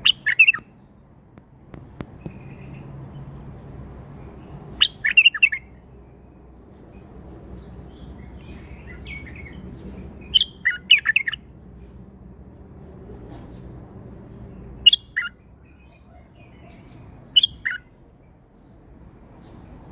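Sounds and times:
bird singing warbled notes: 0.0s - 0.7s.

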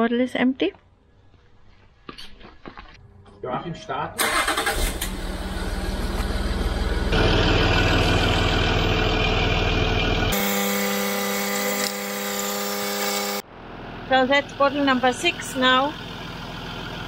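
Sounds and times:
car engine idling: 4.2s - 10.4s, 13.5s - 17.0s.

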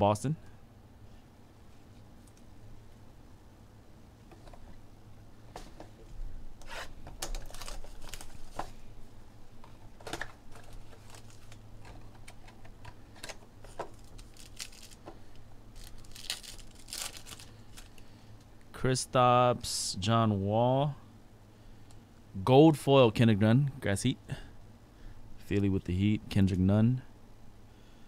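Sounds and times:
foil wrapper crinkling and tearing: 7.2s - 8.7s, 10.5s - 11.6s, 13.7s - 15.0s, 15.7s - 18.1s.

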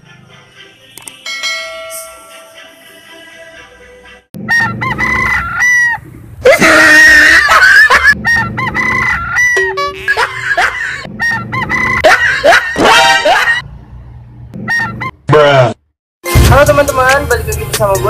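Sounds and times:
bright chime: 1.3s - 2.6s
chickens calling: 2.3s - 6.2s, 7.3s - 13.6s, 14.6s - 15.2s
rooster crowing: 4.4s - 6.0s.

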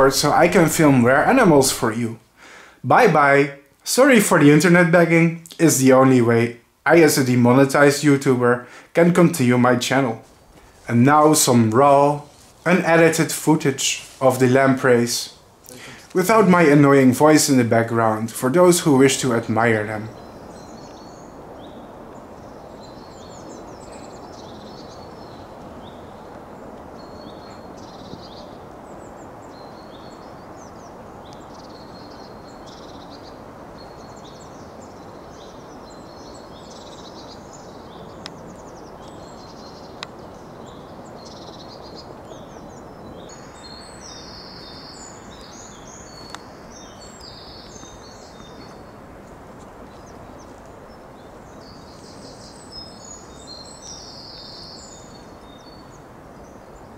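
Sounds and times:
birds chirping and calling: 0.0s - 3.3s, 18.6s - 56.9s
faint clicks: 38.2s - 38.4s, 40.0s - 40.2s, 46.1s - 46.5s.

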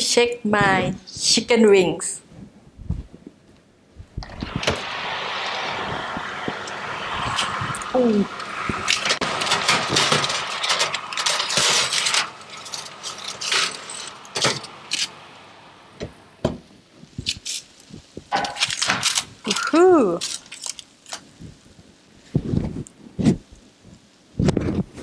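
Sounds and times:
baking tray scraping on oven rack: 8.6s - 15.4s.

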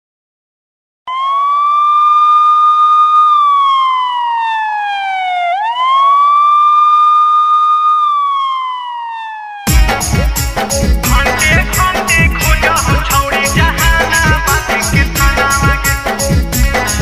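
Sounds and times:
siren wailing: 1.1s - 9.8s.

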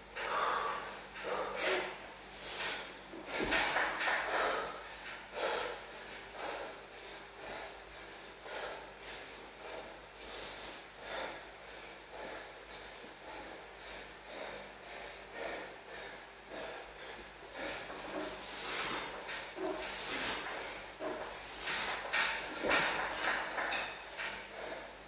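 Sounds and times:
man breathing hard: 0.0s - 25.0s.

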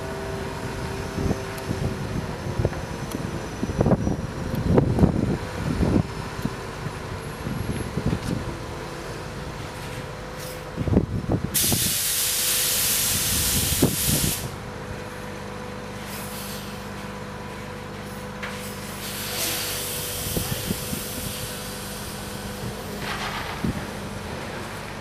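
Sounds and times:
diesel engine running: 0.0s - 25.0s
compressed air hissing: 11.6s - 14.6s, 18.9s - 22.3s.

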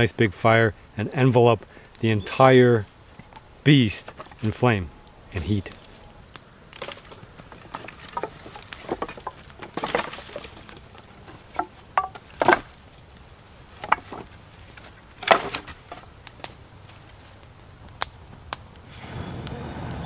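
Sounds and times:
wooden sticks knocking together: 3.2s - 4.6s, 6.8s - 12.8s, 13.8s - 16.5s.

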